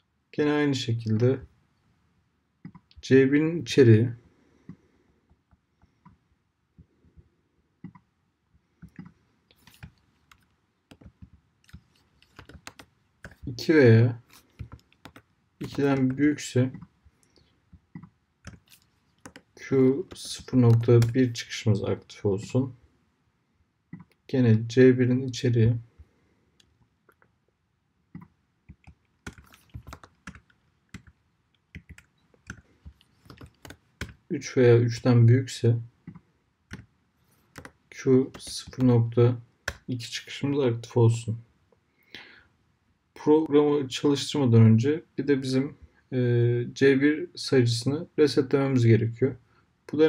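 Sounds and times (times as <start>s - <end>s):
mouse and keyboard clicks: 8.8s - 13.5s, 14.3s - 16.9s, 17.8s - 21.4s, 23.9s - 24.2s, 28.2s - 31.1s, 31.8s - 34.2s, 36.1s - 38.9s.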